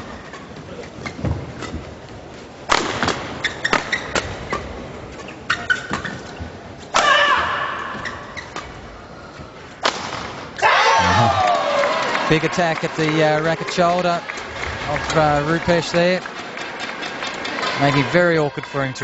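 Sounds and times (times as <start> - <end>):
shoes squeaking on court: 0.0 - 2.5, 3.3 - 6.9, 7.8 - 9.6
racket hitting shuttlecock: 6.9 - 8.7
crowd noise with voices: 10.6 - 19.0.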